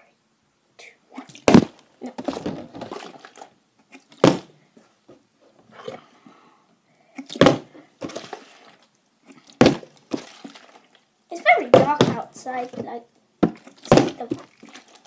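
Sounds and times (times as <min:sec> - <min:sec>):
plastic bottle thudding on table: 0:01.4 - 0:03.0, 0:04.2 - 0:04.5, 0:07.3 - 0:08.2, 0:09.6 - 0:10.3, 0:13.4 - 0:14.4.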